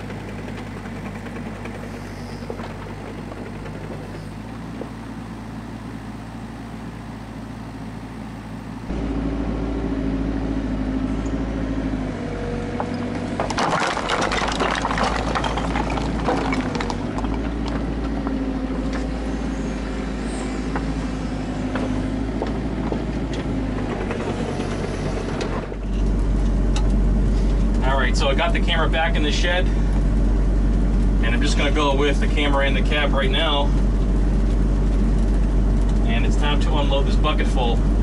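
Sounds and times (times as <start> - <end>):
hydraulic whine: 0.0 - 12.1, 16.8 - 27.8
diesel engine under load: 0.0 - 38.0
knocks and clatter: 12.8 - 19.1.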